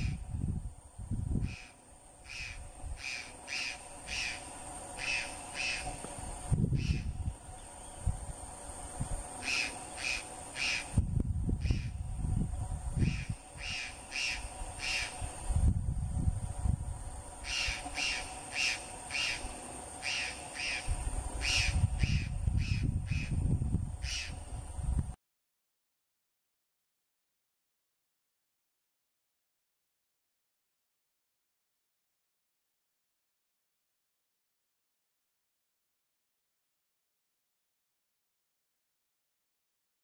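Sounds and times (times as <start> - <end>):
bird harsh repeated calls: 1.4 - 6.0, 6.8 - 7.2, 9.4 - 11.0, 11.6 - 12.0, 13.0 - 15.3, 17.4 - 23.4, 24.0 - 24.4.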